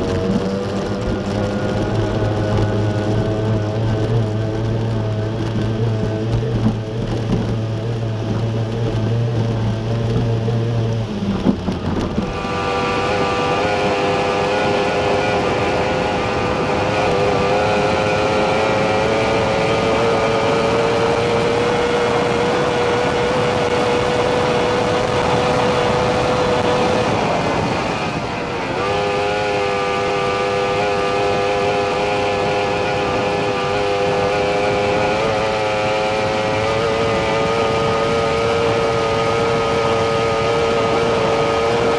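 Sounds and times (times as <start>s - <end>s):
powerboat engine high whine: 0.0s - 41.9s.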